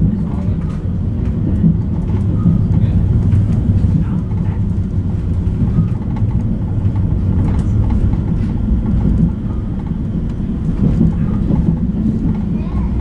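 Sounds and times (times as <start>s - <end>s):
tram wheels rumbling on rail: 0.0s - 13.0s.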